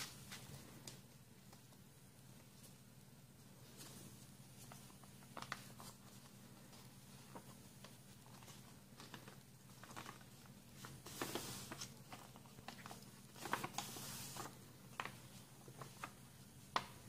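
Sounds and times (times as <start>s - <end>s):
paper rustling: 3.6s - 17.0s
swishing paper crease: 3.6s - 17.0s.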